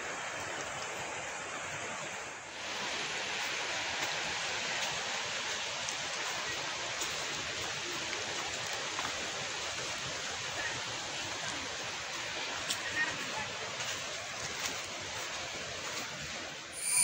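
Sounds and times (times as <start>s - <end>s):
river rapids rushing: 0.0s - 17.0s.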